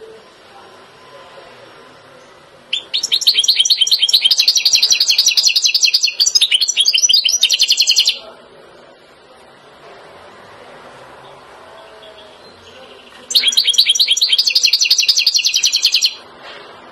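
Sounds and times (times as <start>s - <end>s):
goldfinch twittering song: 2.7s - 8.2s, 13.3s - 16.2s.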